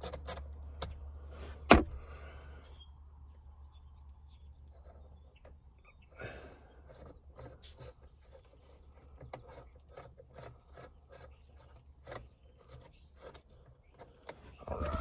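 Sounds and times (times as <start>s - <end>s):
hand tool scraping and clicking: 6.8s - 14.6s.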